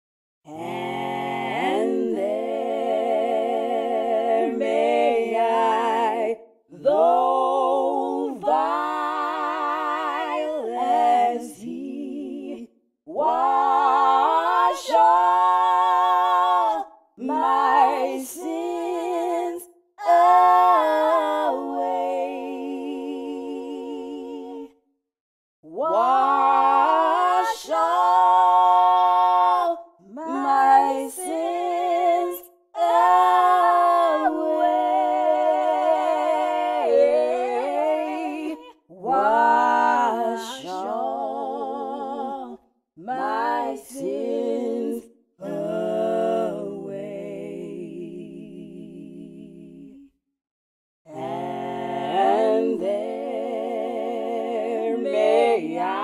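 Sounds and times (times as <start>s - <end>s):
woman singing a hymn: 13.2s - 22.0s, 25.8s - 44.3s.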